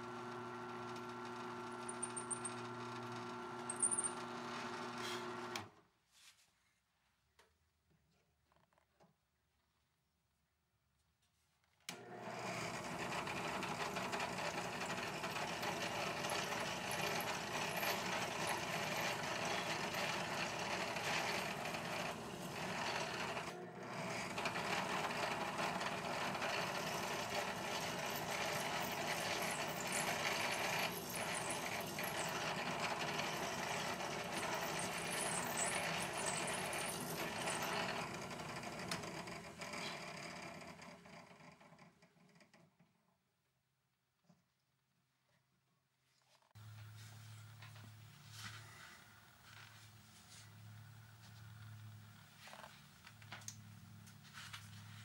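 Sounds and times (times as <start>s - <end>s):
drill press drilling: 0.0s - 5.7s, 11.9s - 41.8s.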